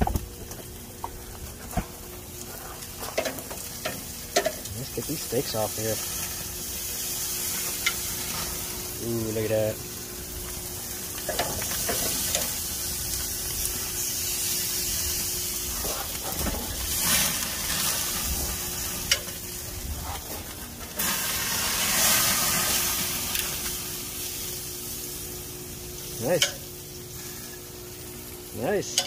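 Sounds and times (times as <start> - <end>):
steaks sizzling on a grill: 0.0 - 29.0
metal tongs clicking on grates: 26.3 - 26.7.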